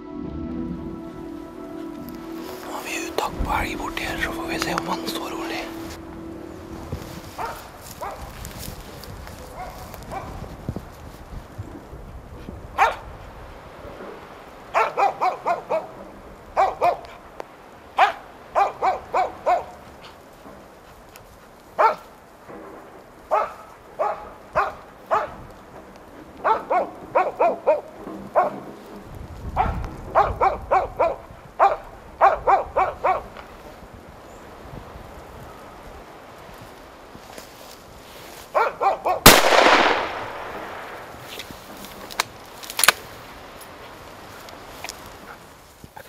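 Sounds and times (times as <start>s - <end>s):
dog barking: 7.4s - 8.3s, 9.5s - 10.4s, 12.8s - 13.0s, 14.7s - 15.9s, 16.6s - 17.2s, 18.0s - 19.8s, 21.8s - 22.1s, 23.3s - 25.4s, 26.4s - 28.6s, 29.6s - 33.3s, 38.5s - 39.2s.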